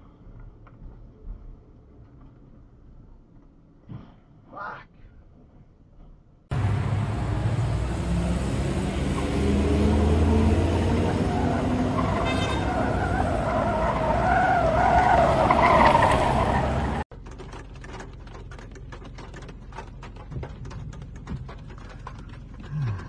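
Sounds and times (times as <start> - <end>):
road and engine noise: 0.0 - 23.0
tyres squealing: 6.6 - 17.0.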